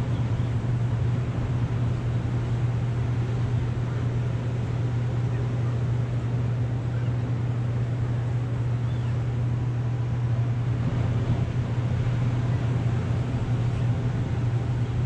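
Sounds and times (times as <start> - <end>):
distant surf: 0.0 - 15.0
wind: 0.0 - 15.0
low rumble: 9.5 - 15.0.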